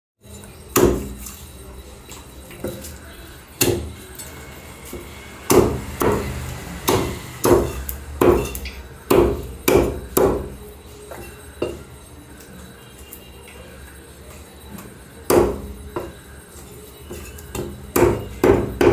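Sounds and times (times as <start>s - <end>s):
cleaver chopping on wooden block: 5.5s - 6.3s, 6.9s - 10.5s, 17.6s - 18.9s.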